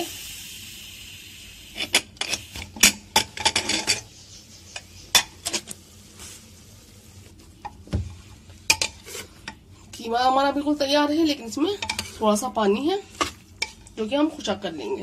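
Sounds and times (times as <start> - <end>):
metal spoon scraping cooker: 1.8 - 5.8.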